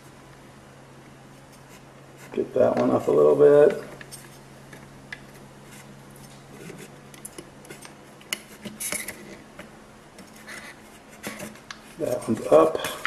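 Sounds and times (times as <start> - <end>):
soldering iron scraping and clicking: 6.2 - 13.0.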